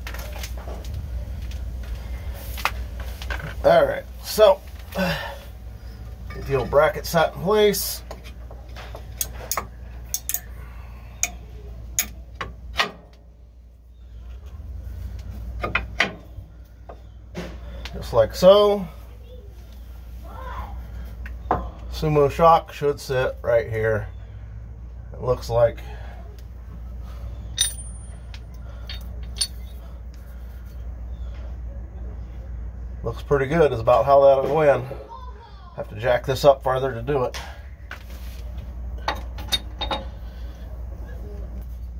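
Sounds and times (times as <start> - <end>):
low background hum: 0.0 - 41.9
low steady rumble: 0.0 - 41.9
light metallic clicks and clinks: 9.2 - 10.6, 27.5 - 29.8, 39.0 - 40.2.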